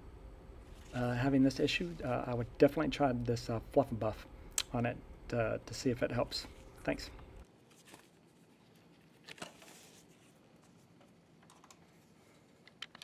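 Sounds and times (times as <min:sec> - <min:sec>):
soft rustle: 0:00.6 - 0:02.6, 0:07.6 - 0:11.0.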